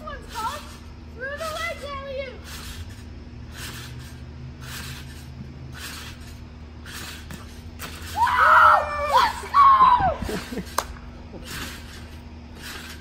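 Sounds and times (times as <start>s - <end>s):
trampoline bouncing rustle: 0.0s - 13.0s
people shouting and screaming: 8.1s - 10.5s.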